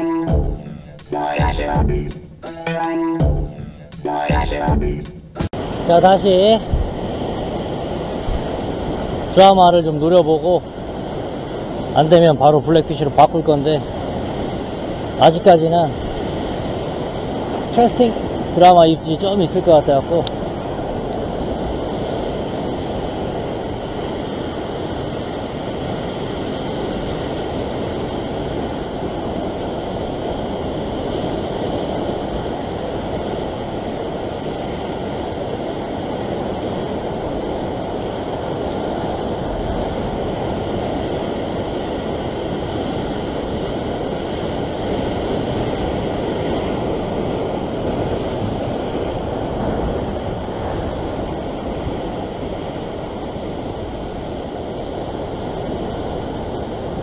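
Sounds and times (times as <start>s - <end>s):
ocean surf over rocks: 5.5s - 57.0s
wind on microphone: 5.6s - 9.6s, 20.3s - 57.0s.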